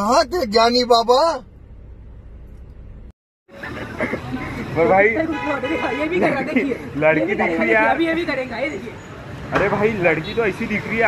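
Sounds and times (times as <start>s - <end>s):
men talking: 0.0s - 1.4s, 4.0s - 11.0s
outdoor noise: 0.0s - 11.0s.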